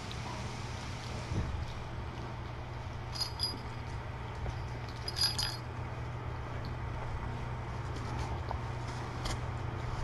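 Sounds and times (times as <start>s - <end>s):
steady low hum: 0.0s - 10.0s
metallic clink with ringing: 3.2s - 3.8s, 4.9s - 5.7s.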